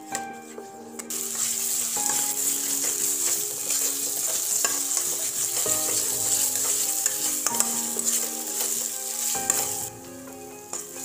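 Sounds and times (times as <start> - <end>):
spatula scraping a pan: 1.0 - 9.9
paste sizzling in ghee: 1.1 - 11.0.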